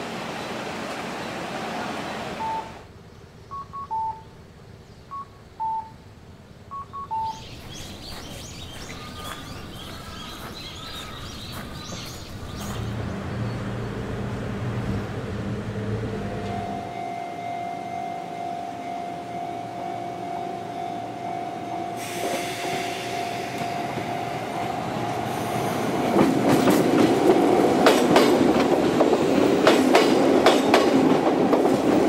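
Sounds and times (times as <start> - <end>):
electronic beeps: 2.4 - 2.7, 3.5 - 4.3, 5.1 - 6.0, 6.7 - 7.5
birds chirping: 2.4 - 14.1.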